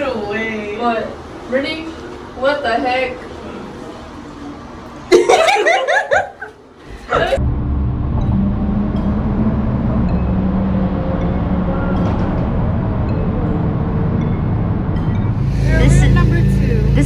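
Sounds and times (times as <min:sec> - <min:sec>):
woman laughing: 0:05.1 - 0:06.5
car cabin road noise: 0:07.4 - 0:17.0.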